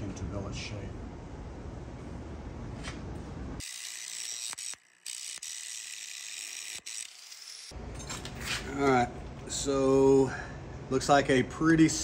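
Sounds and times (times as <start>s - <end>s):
angle grinder grinding steel: 3.6s - 7.8s.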